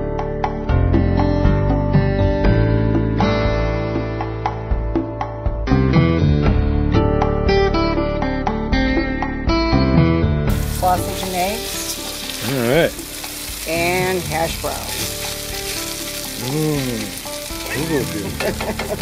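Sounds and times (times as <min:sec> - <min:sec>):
potatoes sizzling in a skillet: 0:10.5 - 0:19.0
spatula scraping pan: 0:10.8 - 0:19.0.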